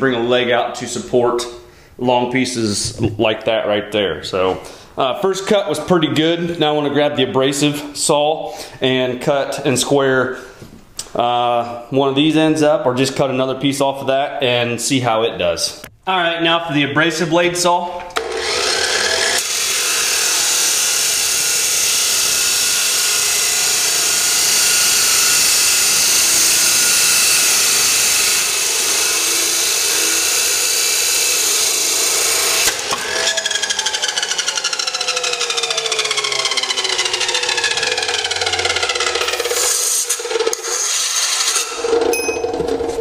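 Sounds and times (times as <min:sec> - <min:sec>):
chop saw grinding through steel: 0:18.2 - 0:43.0
saw wheel winding down whine: 0:18.2 - 0:43.0.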